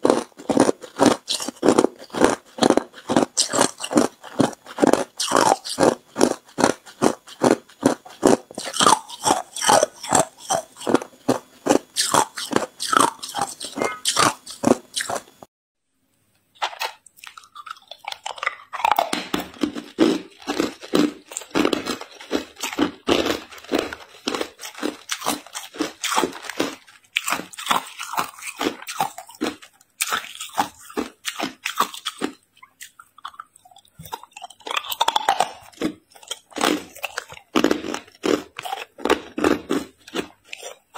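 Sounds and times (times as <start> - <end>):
ice crunching being chewed: 0.0 - 15.4, 16.7 - 40.9.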